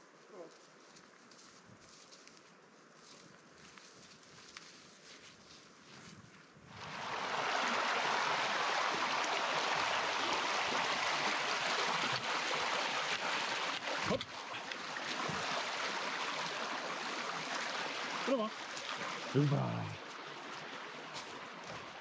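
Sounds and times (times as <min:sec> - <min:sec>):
stream flowing: 0:06.7 - 0:22.0.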